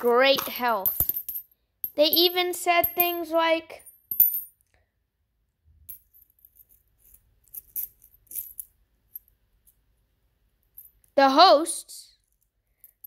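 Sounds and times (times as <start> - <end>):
coins clinking: 0.1 - 4.5, 5.9 - 8.7.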